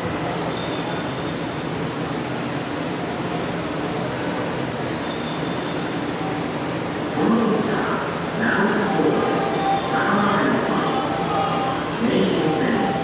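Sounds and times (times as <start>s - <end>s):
subway tunnel rumble: 0.0s - 13.0s.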